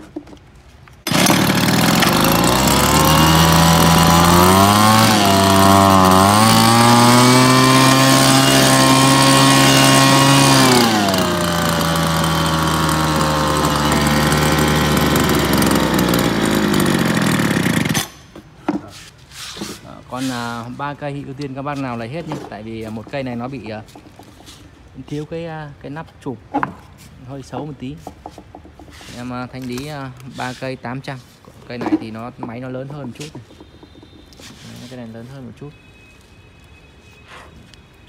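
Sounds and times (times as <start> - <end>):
leaf blower engine running: 1.0 - 18.2.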